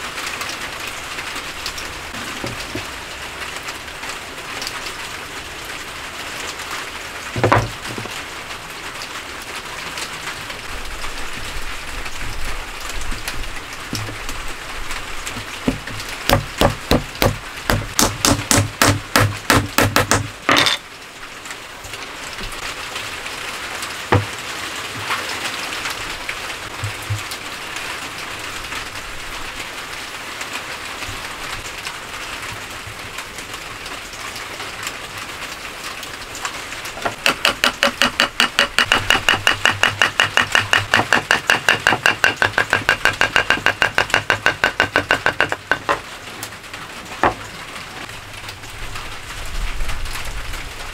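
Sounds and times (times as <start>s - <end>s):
wooden joint knocks: 7.4s - 8.1s, 15.3s - 20.8s, 24.1s - 24.3s, 26.8s - 27.3s, 37.0s - 46.1s, 47.2s - 47.4s.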